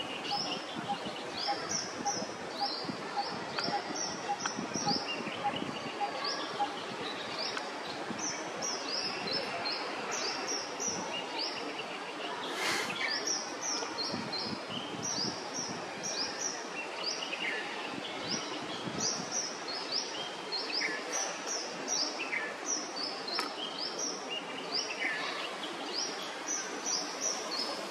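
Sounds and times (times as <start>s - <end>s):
small birds chirping: 0.0s - 27.9s
outdoor hiss: 12.3s - 13.3s.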